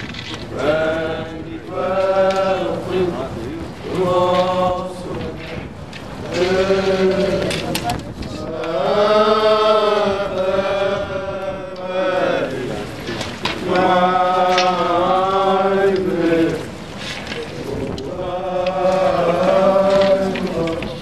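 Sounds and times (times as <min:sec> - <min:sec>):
men chanting together: 0:00.6 - 0:05.6, 0:06.2 - 0:07.8, 0:08.4 - 0:13.0, 0:13.6 - 0:16.8, 0:18.0 - 0:21.0.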